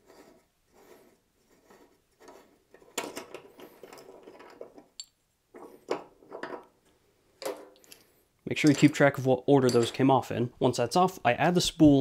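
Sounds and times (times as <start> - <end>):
wing nut and washers rattling: 2.7 - 6.8, 7.4 - 10.1.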